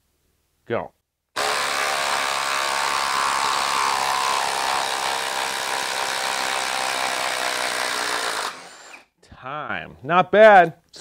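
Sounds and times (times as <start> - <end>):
impact driver hammering: 1.4 - 8.9.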